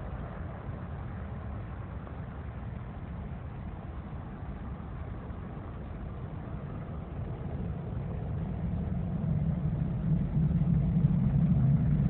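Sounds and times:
distant jet engines rumbling: 0:03.6 - 0:12.0.

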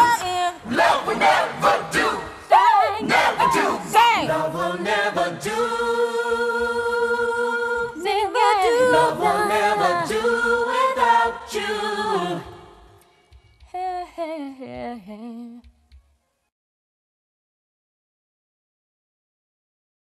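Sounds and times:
women singing harmonies: 0:00.0 - 0:13.0, 0:13.7 - 0:15.7.

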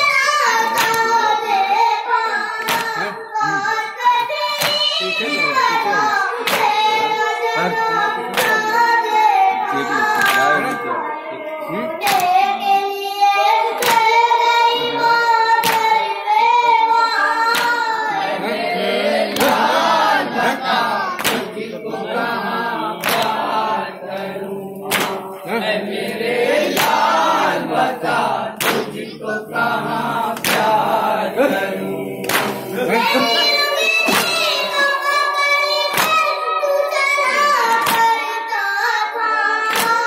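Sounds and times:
person singing a lament: 0:00.0 - 0:12.6, 0:30.0 - 0:38.2
men chanting: 0:02.6 - 0:03.8, 0:04.8 - 0:12.6, 0:17.2 - 0:35.0
hands striking chests: 0:24.9 - 0:25.2.

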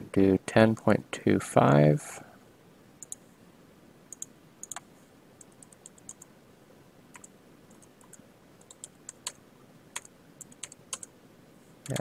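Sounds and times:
mouse clicks: 0:03.0 - 0:03.2, 0:04.1 - 0:06.3
computer keyboard keystrokes: 0:04.1 - 0:04.8, 0:05.4 - 0:06.3, 0:07.1 - 0:09.4, 0:10.0 - 0:11.1.

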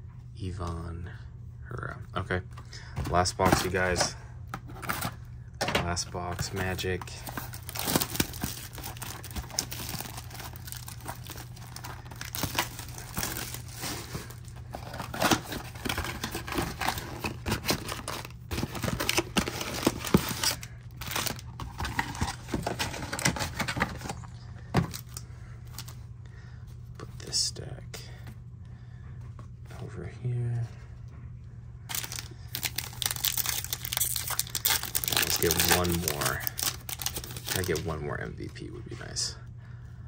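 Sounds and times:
packaging crinkling and tearing: 0:03.2 - 0:05.2, 0:06.1 - 0:26.0, 0:31.9 - 0:38.2.

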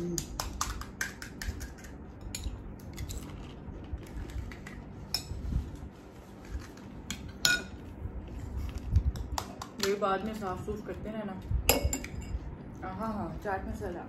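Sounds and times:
metal spoons clinking on bowls: 0:07.4 - 0:07.8, 0:11.7 - 0:12.4.

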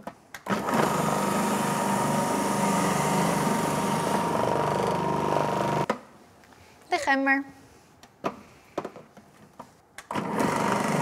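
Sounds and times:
juicer motor whine: 0:00.5 - 0:05.9, 0:10.1 - 0:11.0.

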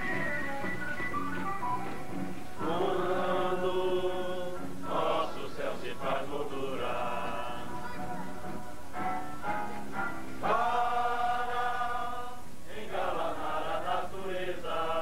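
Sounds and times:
group of voices singing: 0:02.6 - 0:08.2, 0:10.4 - 0:15.0.

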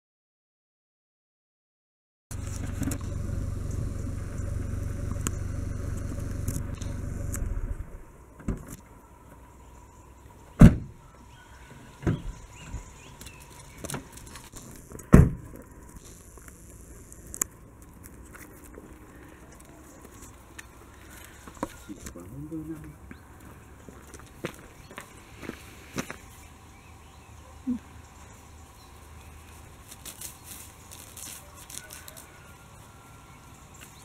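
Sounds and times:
car engine idling: 0:02.3 - 0:10.5
car door thumps: 0:10.6 - 0:11.0, 0:12.0 - 0:12.4, 0:15.1 - 0:15.5.

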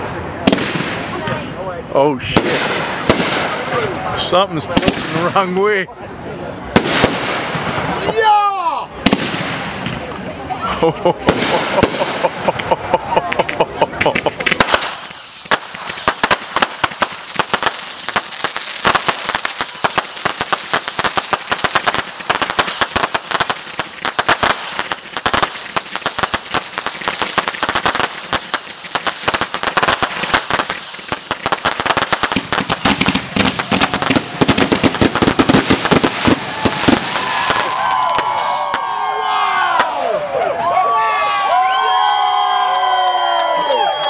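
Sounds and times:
firework crackling pops: 0:00.0 - 0:01.5, 0:02.2 - 0:03.8, 0:04.7 - 0:05.2, 0:06.7 - 0:08.1, 0:09.0 - 0:39.1
firework whistles falling in pitch: 0:14.6 - 0:40.0, 0:41.6 - 0:44.0.

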